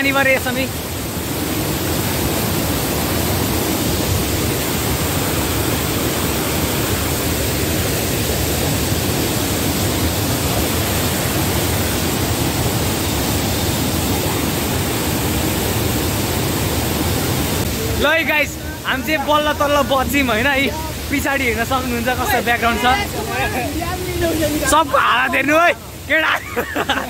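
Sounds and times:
floodwater rushing over boulders: 0.0s - 27.0s.

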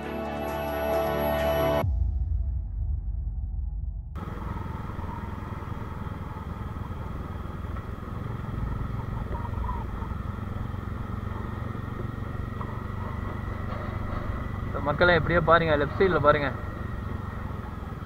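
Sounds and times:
motorcycle engine rumble: 1.8s - 18.0s
road noise: 4.2s - 18.0s.

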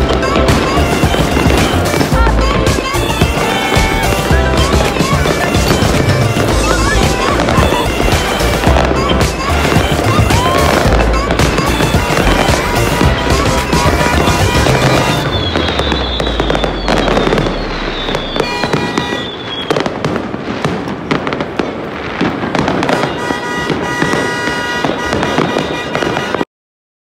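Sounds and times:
fireworks crackling and banging: 0.0s - 26.5s
whistling rockets: 0.2s - 26.4s.

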